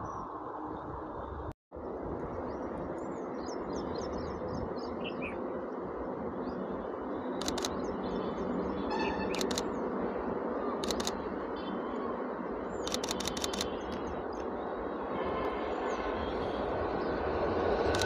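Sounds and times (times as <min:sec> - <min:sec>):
outdoor background noise: 0:00.0 - 0:18.0
bursts of sharp clicks: 0:12.8 - 0:14.5.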